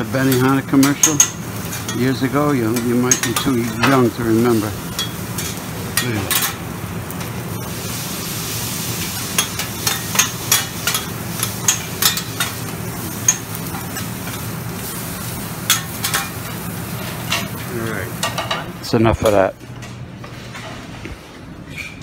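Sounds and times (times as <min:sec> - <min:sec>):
meat and vegetables sizzling: 0:00.0 - 0:18.8
metal spatulas scraping on griddle: 0:15.7 - 0:16.4.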